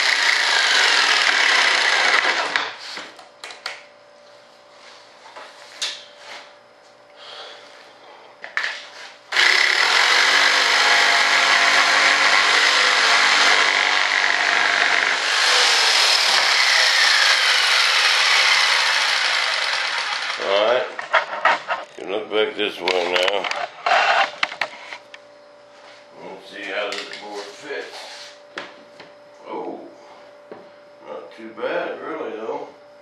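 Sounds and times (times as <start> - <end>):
jigsaw cutting board: 0.0 - 2.7, 9.3 - 21.8.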